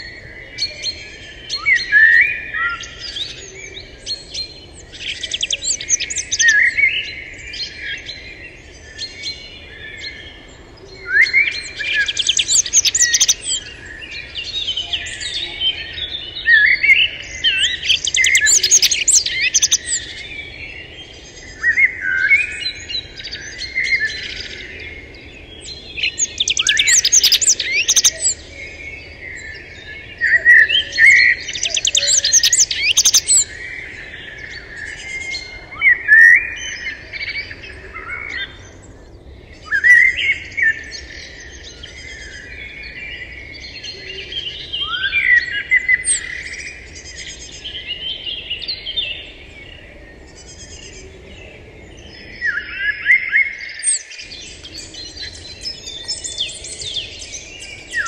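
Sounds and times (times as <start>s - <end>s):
birds chirping: 0.0s - 58.0s.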